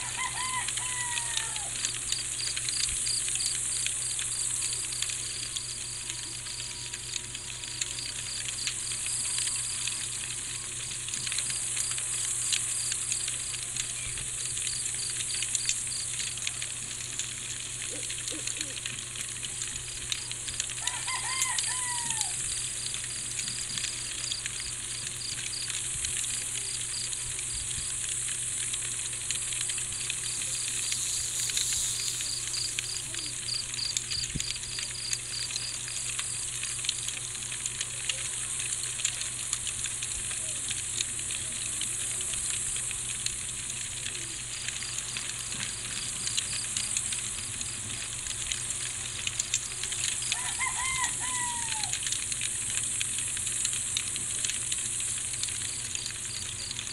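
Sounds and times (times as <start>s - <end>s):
rooster crowing: 0.0s - 1.9s, 20.8s - 22.6s, 50.2s - 52.1s
crickets chirping: 0.0s - 16.4s, 20.8s - 36.8s, 44.1s - 56.9s
insect hiss: 0.0s - 56.9s
low steady hum: 0.0s - 56.9s.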